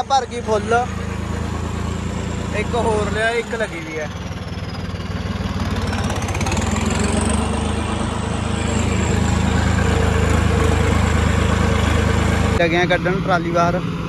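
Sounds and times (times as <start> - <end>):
diesel engine running: 0.0 - 14.0
high whine: 5.8 - 13.9.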